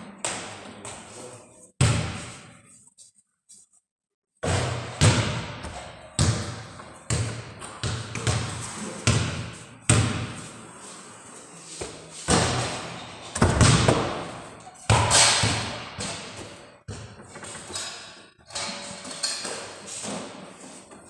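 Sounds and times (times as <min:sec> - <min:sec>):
basketball bouncing on hard floor: 0:01.8 - 0:02.5, 0:04.4 - 0:10.4, 0:12.3 - 0:17.6
basketball striking hoop: 0:04.4 - 0:10.4, 0:12.3 - 0:17.2.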